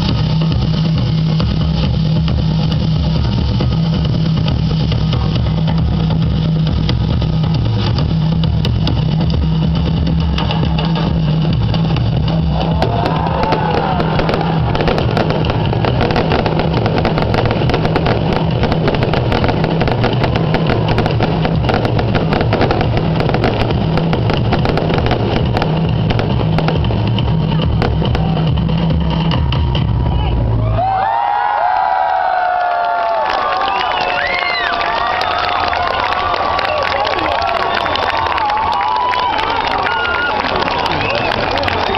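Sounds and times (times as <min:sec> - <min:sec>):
fireworks crackling: 0:00.0 - 0:29.8, 0:33.2 - 0:41.9
fireworks booming: 0:09.8 - 0:30.0
fireworks whistling: 0:11.6 - 0:30.4.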